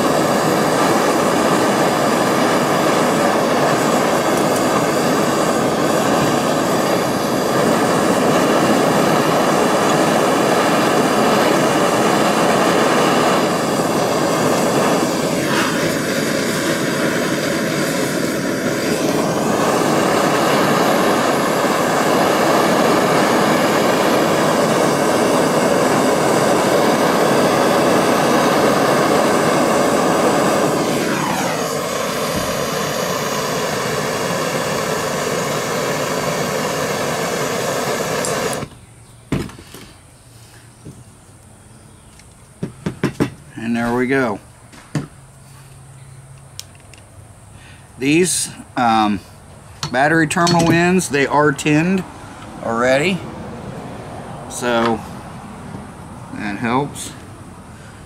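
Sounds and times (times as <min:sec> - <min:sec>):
propane torch hissing: 0:00.0 - 0:41.0, 0:42.1 - 0:58.0.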